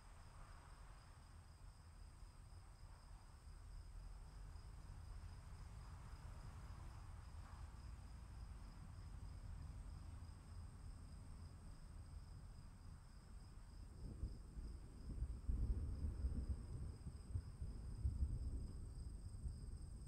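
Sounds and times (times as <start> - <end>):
insects droning: 0.0 - 20.0
low storm rumble: 0.0 - 20.0.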